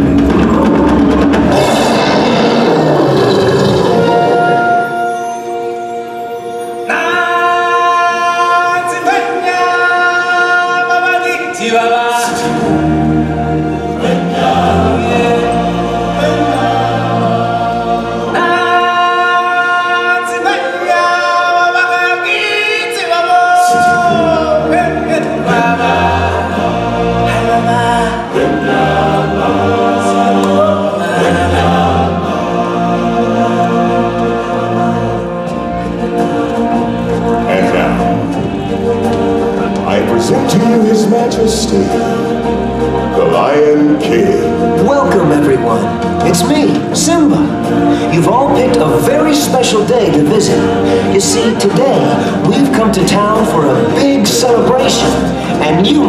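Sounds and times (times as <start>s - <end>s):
deep low notes: 0.0s - 5.1s
choir singing held notes: 0.0s - 56.0s.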